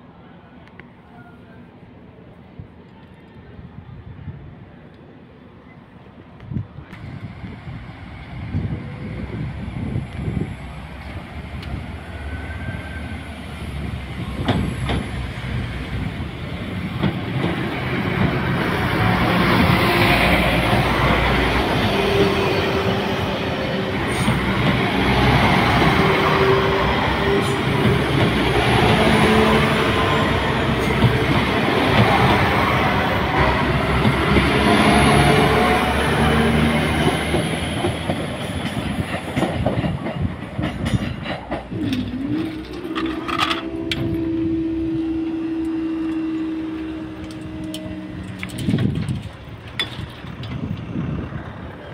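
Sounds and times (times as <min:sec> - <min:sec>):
train passing rumble: 0:00.0 - 0:51.9
train wheels clattering: 0:37.0 - 0:44.2
crossing barrier motor hum: 0:41.8 - 0:51.7.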